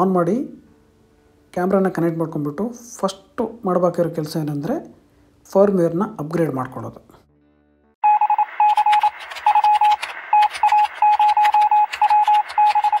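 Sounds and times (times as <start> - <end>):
morse code beeps: 8.0 - 13.0
crackling radio static: 8.2 - 13.0.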